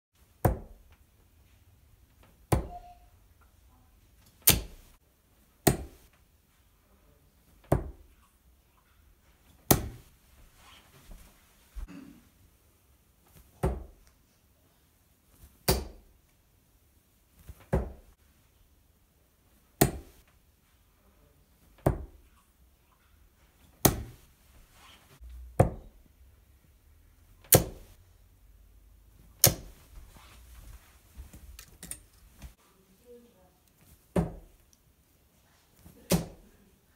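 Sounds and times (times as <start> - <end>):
darts thudding into dartboard: 0.4 - 0.8, 2.5 - 2.8, 4.4 - 4.9, 5.6 - 6.1, 7.6 - 8.1, 9.7 - 10.1, 13.6 - 14.0, 15.6 - 16.1, 17.6 - 18.0, 19.8 - 20.2, 23.8 - 24.2, 25.6 - 26.0, 27.4 - 28.0, 29.4 - 30.2, 34.1 - 34.5, 36.0 - 36.4.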